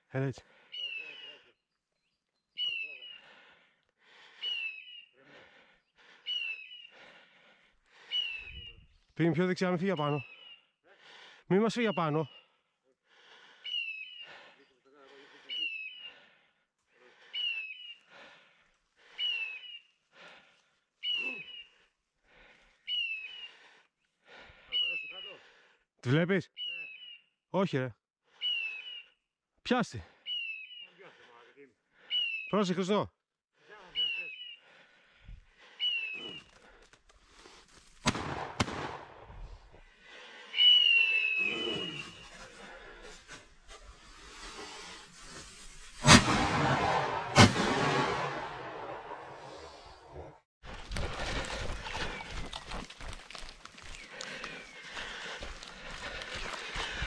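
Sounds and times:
shotgun shots with echo: 38.0 - 39.3, 46.0 - 49.6.

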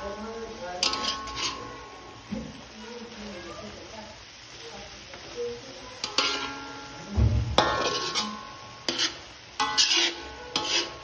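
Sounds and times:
metal spatula scraping a wok: 0.7 - 2.2, 6.0 - 11.0.

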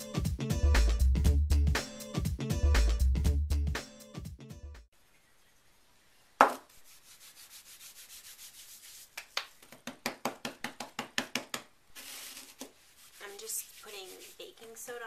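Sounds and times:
hands patting soft dough: 6.4 - 6.7, 7.4 - 11.8
hands rubbing: 6.4 - 15.0.

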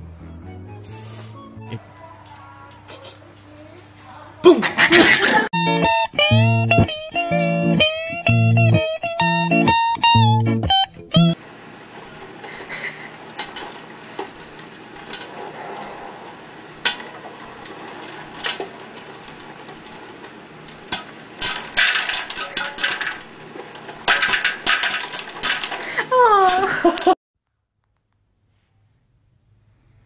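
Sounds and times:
popcorn popping: 11.4 - 15.3, 16.4 - 27.1.

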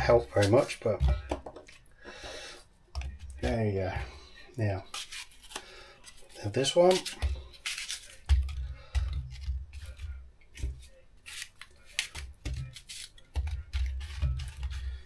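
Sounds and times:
knife cutting apple: 0.0 - 2.3, 4.8 - 15.0.

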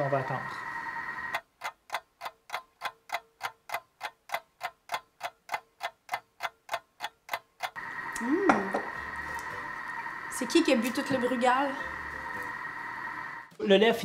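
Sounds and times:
clock ticking: 1.3 - 7.8.

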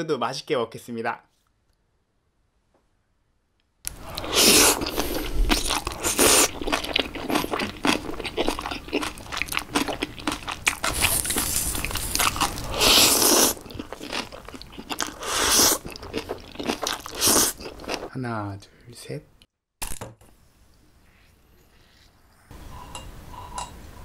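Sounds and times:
crunchy eating sounds: 3.9 - 18.1.

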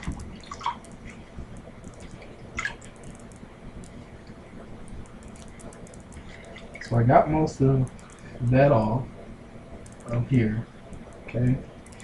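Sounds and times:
water dripping into basin: 0.0 - 7.0.

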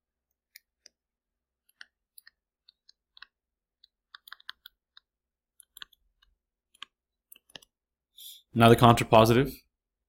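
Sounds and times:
stylus tapping on tablet screen: 1.6 - 7.8.

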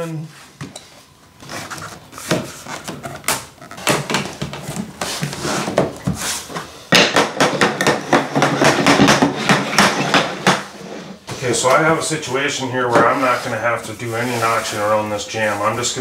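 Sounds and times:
flooring planks being knocked: 6.9 - 11.4.

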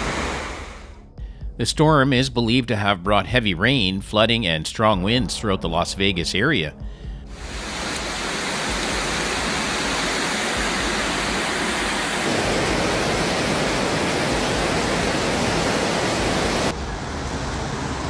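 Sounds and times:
floodwater rushing: 0.0 - 0.9, 7.3 - 18.0.

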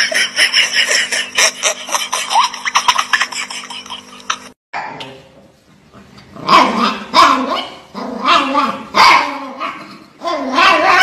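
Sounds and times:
small dog barking and growling: 6.4 - 11.0.

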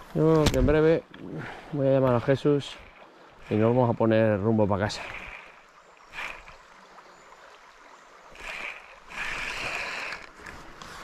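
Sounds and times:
stream water running: 0.0 - 11.0.

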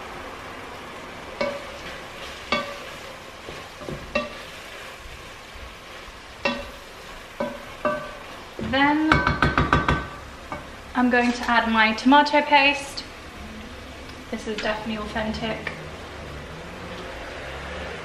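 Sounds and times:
meat sizzling in a pot: 0.0 - 18.0
spoon knocking against pot: 1.4 - 1.7, 2.5 - 2.8, 6.4 - 6.8, 7.4 - 8.2, 9.0 - 10.7.

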